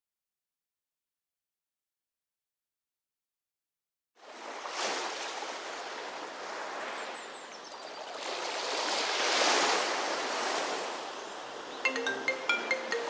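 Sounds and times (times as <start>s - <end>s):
ocean waves breaking on shore: 4.2s - 13.0s.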